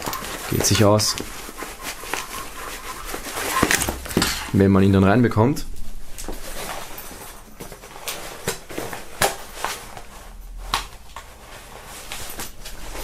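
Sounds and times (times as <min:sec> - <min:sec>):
backpack rustling: 0:00.0 - 0:04.6, 0:05.8 - 0:13.0.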